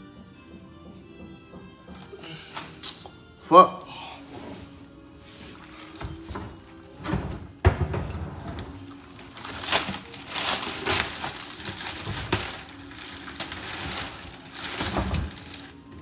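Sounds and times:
plastic wrap crinkling: 5.3s - 6.9s, 8.6s - 16.0s.

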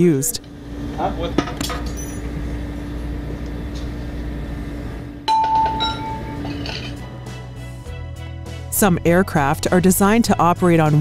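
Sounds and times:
low machinery hum: 0.0s - 7.2s.

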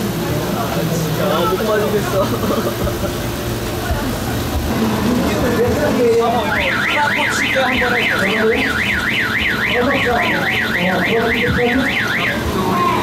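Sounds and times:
electronic siren warbling: 6.3s - 13.0s.

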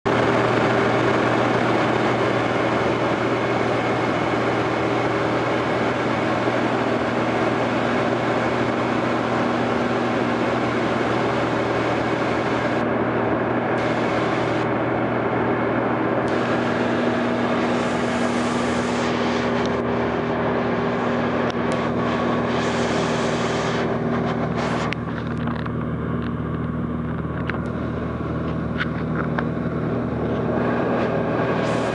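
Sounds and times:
propeller plane engine droning: 0.0s - 31.9s
cabin hiss: 21.8s - 25.0s.

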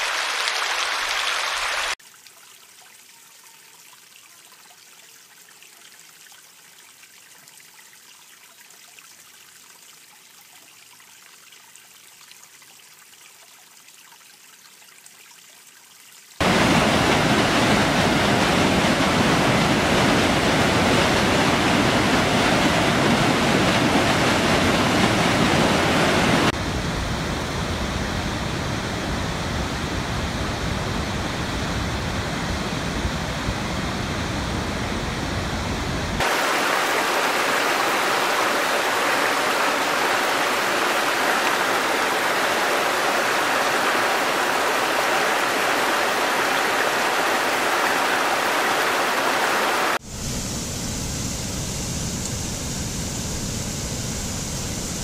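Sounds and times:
falling water rushing: 0.0s - 2.0s, 16.4s - 26.6s, 36.2s - 50.4s
rushing white water: 0.0s - 2.0s, 16.4s - 50.3s
creek trickling over rocks: 0.0s - 16.6s, 36.2s - 50.0s.

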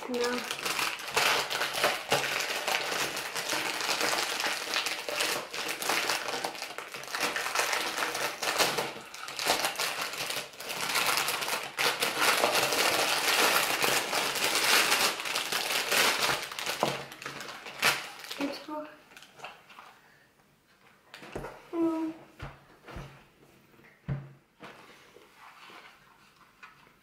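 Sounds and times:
plastic bag crinkling and tearing: 0.0s - 19.6s.

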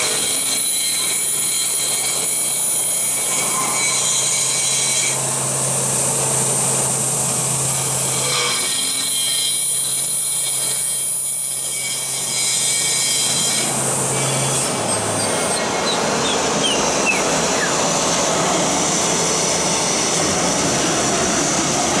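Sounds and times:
machine spindle hum and whine: 0.0s - 22.0s
spindle winding down whine: 14.1s - 22.0s.

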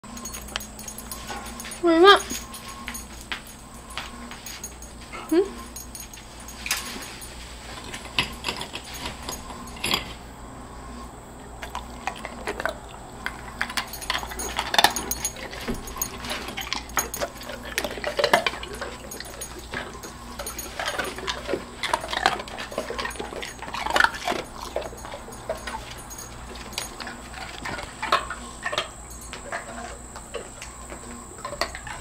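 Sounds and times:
dog crunching ice cubes: 11.6s - 32.0s.

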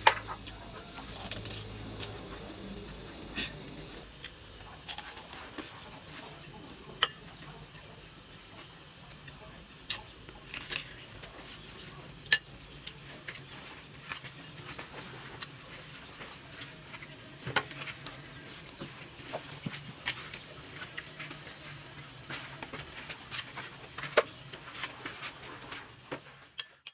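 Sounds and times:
person chewing: 0.3s - 5.4s.

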